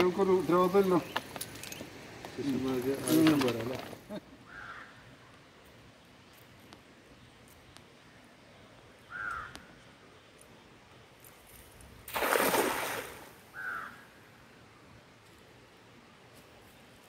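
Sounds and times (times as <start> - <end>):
cast net splashing into water: 12.0 - 13.5.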